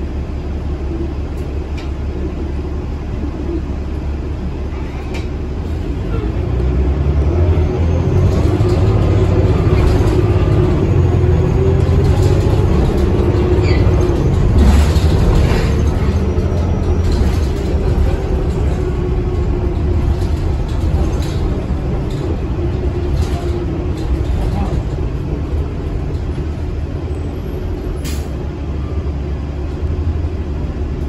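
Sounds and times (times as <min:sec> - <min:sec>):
bus engine and road rumble: 0:00.0 - 0:31.0
rattles and clicks: 0:08.2 - 0:26.9.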